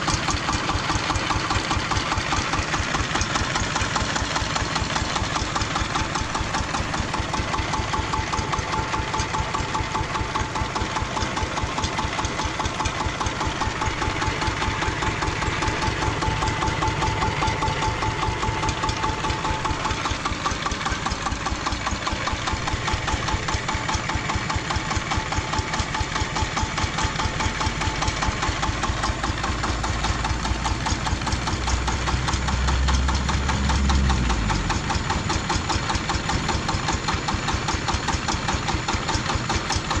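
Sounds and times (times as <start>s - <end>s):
tractor engine idling: 0.0s - 40.0s
deep rumble: 31.6s - 35.3s.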